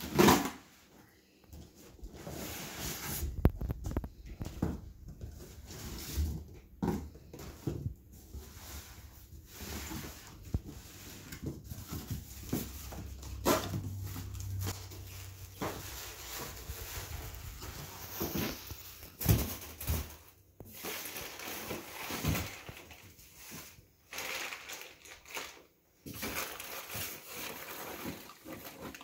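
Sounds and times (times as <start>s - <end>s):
cardboard boxes knocking and rustling: 1.6s - 23.8s
foil packing rustling: 9.0s - 29.0s.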